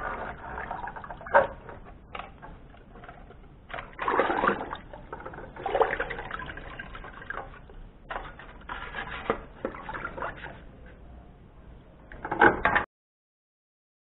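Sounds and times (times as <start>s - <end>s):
water sloshing in plastic bucket: 0.0s - 10.7s
bristle brush scrubbing: 6.9s - 10.7s.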